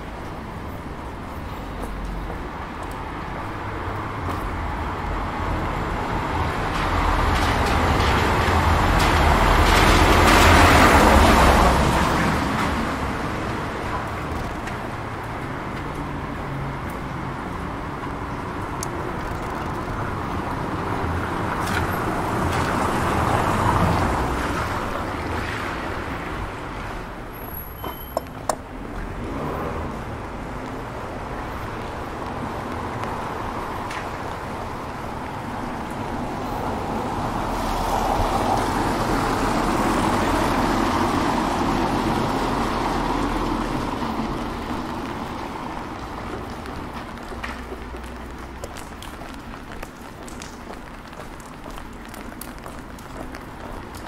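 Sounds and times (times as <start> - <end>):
tyre hiss on wet street: 0.1 - 54.0.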